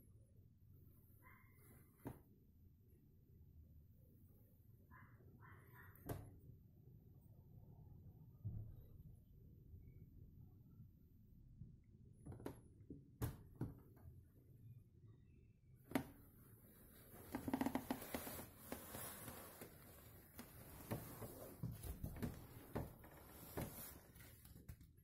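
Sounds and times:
faint rustling: 16.6s - 24.7s.

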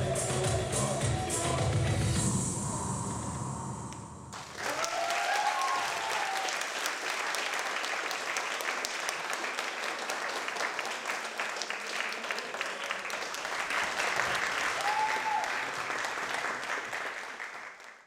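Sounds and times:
dance music: 0.0s - 3.8s
audience cheering: 4.3s - 8.5s, 13.7s - 16.8s
audience applause: 4.3s - 18.0s.

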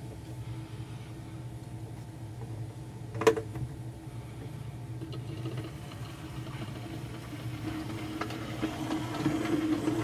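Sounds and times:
electric motor hum: 4.1s - 10.0s
wheels clicking on rails: 5.1s - 10.0s.

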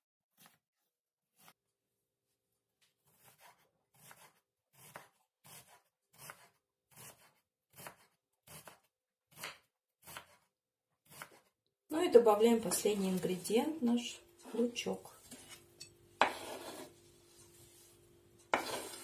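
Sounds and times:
knife chopping on wooden board: 3.2s - 10.4s, 11.0s - 11.5s, 16.2s - 17.0s, 18.4s - 19.0s.

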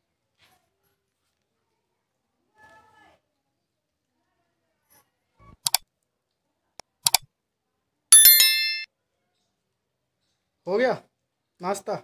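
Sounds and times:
mouse clicks: 7.0s - 7.2s
bell ding: 8.2s - 8.9s.

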